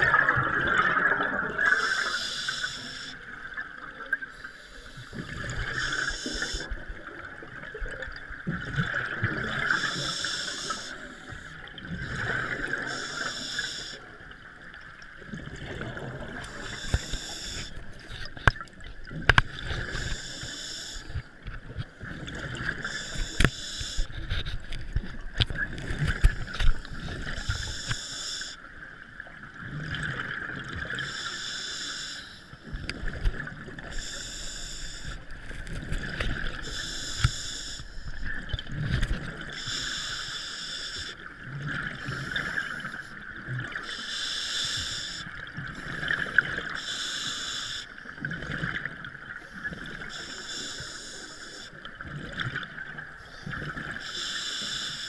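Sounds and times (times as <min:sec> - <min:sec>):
scuba regulator breathing bubbles: 0:00.0 - 0:03.2, 0:04.4 - 0:07.1, 0:08.8 - 0:14.1, 0:15.5 - 0:18.6, 0:22.1 - 0:24.8, 0:29.9 - 0:48.7
steady underwater hiss and rumble: 0:00.0 - 0:55.0.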